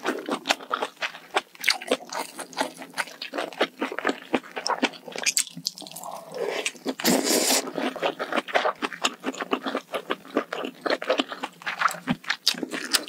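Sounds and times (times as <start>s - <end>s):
wet chewing and crunching: 0.0s - 13.0s
person slurping food: 5.8s - 8.4s.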